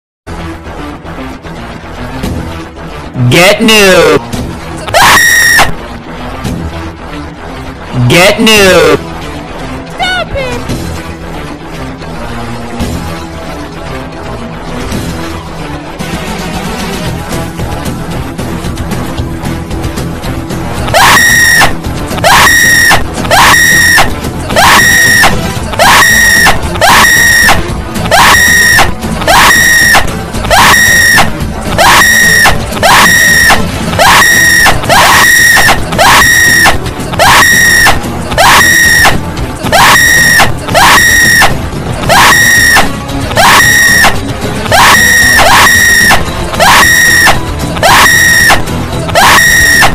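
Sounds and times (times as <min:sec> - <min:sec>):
music track: 0:00.3 - 0:49.9
looped rising scream: 0:20.9 - 0:49.9.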